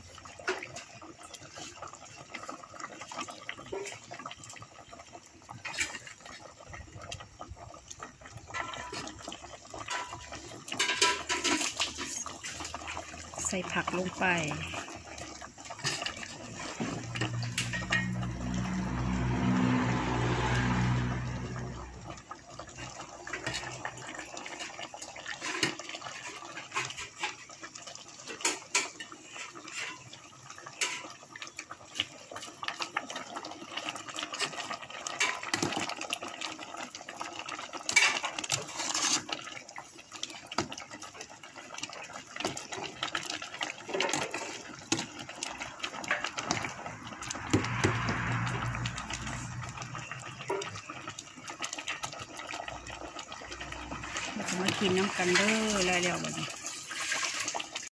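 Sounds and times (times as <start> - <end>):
ladle scraping metal pot: 5.5 - 6.4, 8.4 - 31.3, 33.8 - 36.3, 37.5 - 40.7, 41.8 - 57.9
liquid sloshing: 8.5 - 31.2, 31.8 - 57.9.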